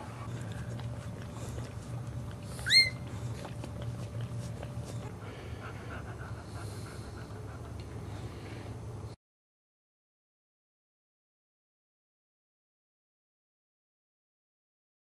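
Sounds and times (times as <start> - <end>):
puppy squeaking: 2.5 - 3.1.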